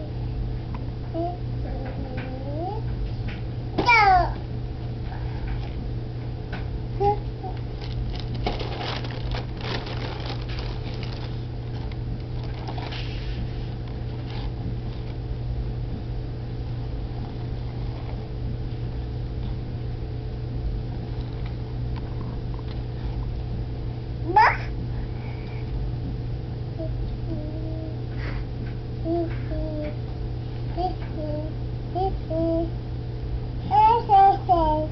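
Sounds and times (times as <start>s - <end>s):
steady low hum: 0.0s - 34.9s
cardboard box and plastic bag rustling: 7.7s - 15.2s.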